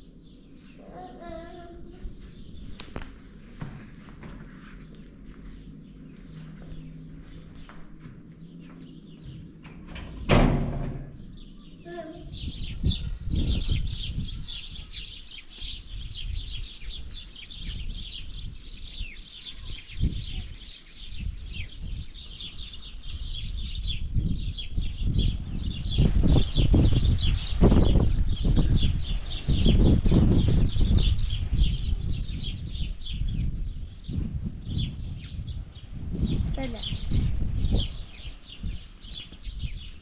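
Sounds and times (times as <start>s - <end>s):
small birds chirping: 0.0s - 3.7s, 4.6s - 10.2s, 11.0s - 40.0s
low rumbles: 1.3s - 14.5s
loud bang: 10.3s - 11.4s.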